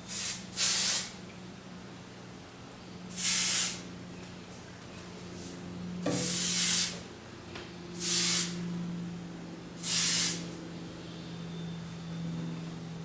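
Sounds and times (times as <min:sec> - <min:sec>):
aerosol spray hissing: 0:00.1 - 0:01.1, 0:03.1 - 0:03.8, 0:06.2 - 0:07.0, 0:08.0 - 0:08.6, 0:09.8 - 0:10.4.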